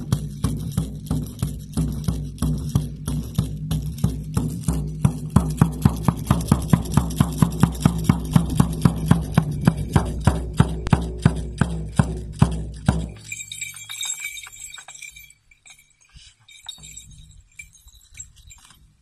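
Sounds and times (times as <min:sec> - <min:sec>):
frame drum beaten: 0:00.0 - 0:14.4
metallic jingling: 0:00.0 - 0:19.0.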